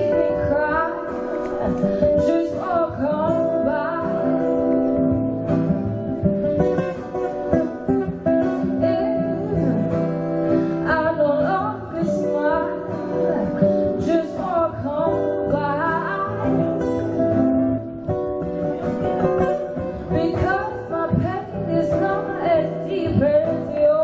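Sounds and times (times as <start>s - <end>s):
woman singing: 0.0s - 5.4s, 8.2s - 17.4s, 20.0s - 24.0s
strummed acoustic guitar: 0.0s - 24.0s.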